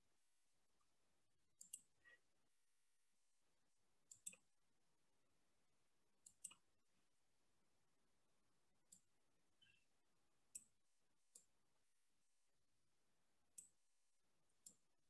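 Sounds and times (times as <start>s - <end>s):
computer mouse clicks: 1.6s - 2.2s, 4.1s - 4.5s, 6.2s - 6.7s, 8.9s - 9.8s.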